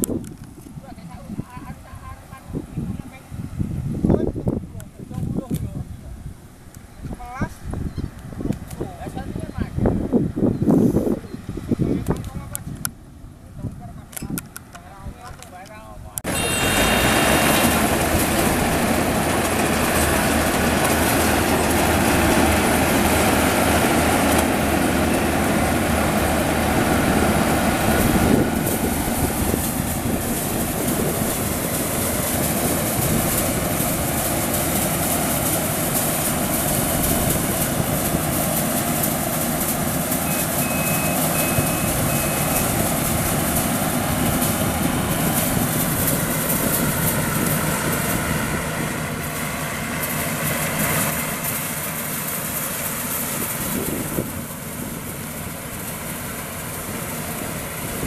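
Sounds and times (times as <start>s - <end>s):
combine harvester running: 14.0s - 58.0s.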